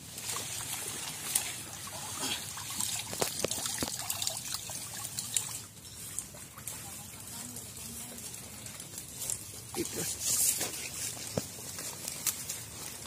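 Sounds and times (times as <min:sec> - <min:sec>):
water trickling through net: 0:00.0 - 0:13.0
small splashes of drops: 0:00.2 - 0:07.0.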